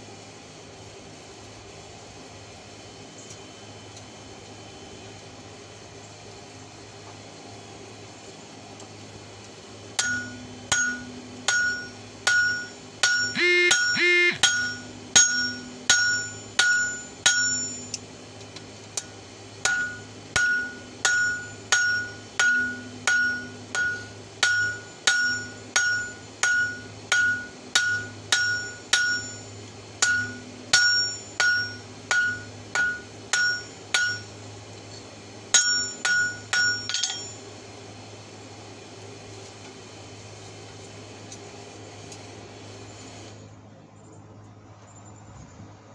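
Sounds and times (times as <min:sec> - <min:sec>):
anvil ringing: 0:10.0 - 0:18.0, 0:19.6 - 0:34.3, 0:35.5 - 0:37.4
hammer striking on anvil: 0:10.0 - 0:18.0, 0:19.0 - 0:34.3, 0:35.5 - 0:37.4.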